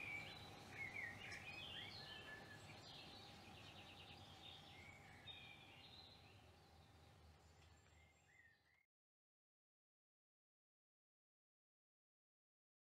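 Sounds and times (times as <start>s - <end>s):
small birds chirping: 0.0s - 8.8s.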